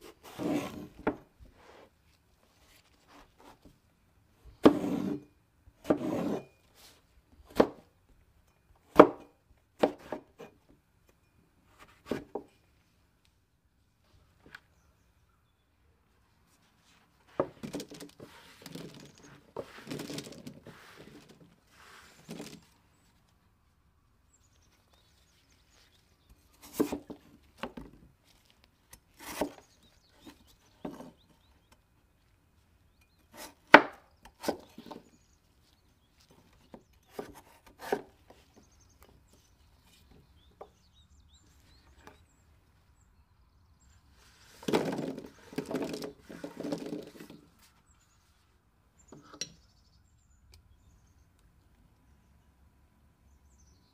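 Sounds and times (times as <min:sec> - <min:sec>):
knife chopping on wooden board: 0:04.6 - 0:05.2.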